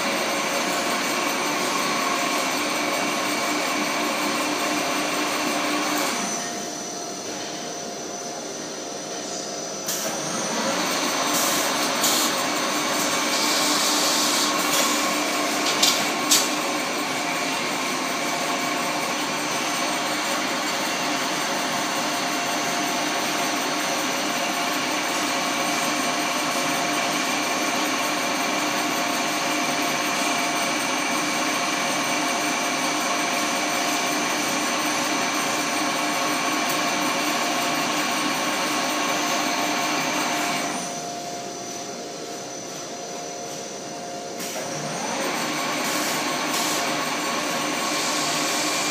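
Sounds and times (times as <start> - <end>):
wire coiling machine running: 0.0 - 48.9.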